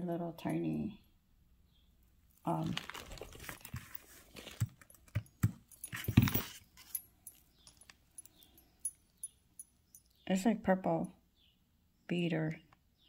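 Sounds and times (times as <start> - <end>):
pearls clicking and rattling: 2.4 - 10.2.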